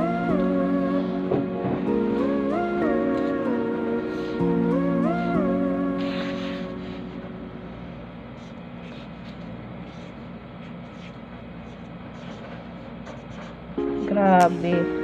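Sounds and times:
low room hum: 0.0 - 15.0
pen scratching on paper: 8.4 - 13.6.

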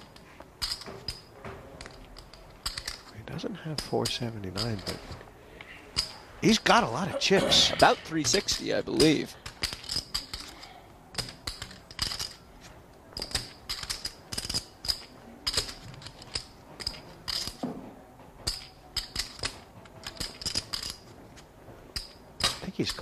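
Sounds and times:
poker chips clicking together: 8.1 - 12.5, 13.1 - 17.6, 18.4 - 21.1.

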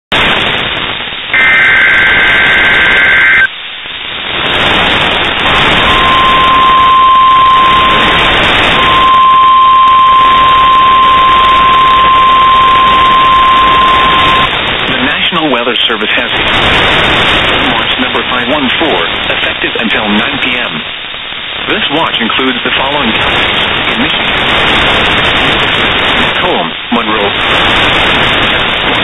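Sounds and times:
radio static hiss: 0.1 - 29.0
steady warning alarm tone: 1.3 - 3.5, 5.4 - 14.6.

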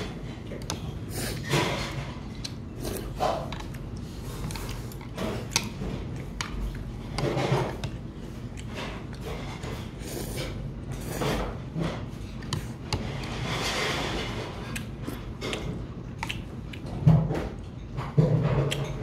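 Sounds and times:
man chewing: 14.6 - 16.9.

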